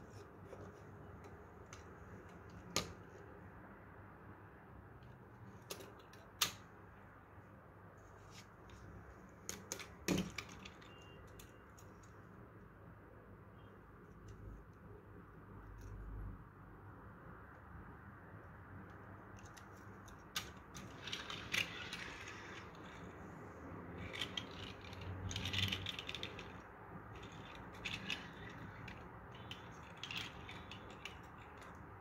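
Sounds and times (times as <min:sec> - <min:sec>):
toy truck wheels rolling on table: 0:20.4 - 0:32.0.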